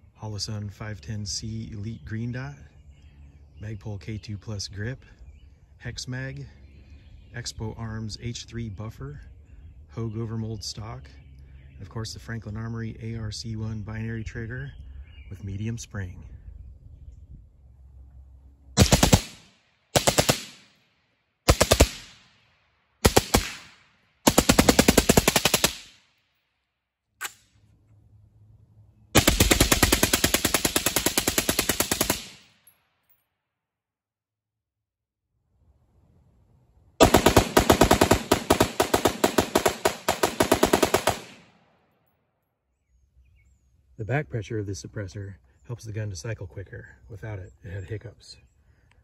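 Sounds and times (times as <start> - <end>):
suppressed rifle shots: 18.8 - 20.7, 21.5 - 22.3, 23.0 - 26.0, 29.2 - 32.5, 37.0 - 41.5.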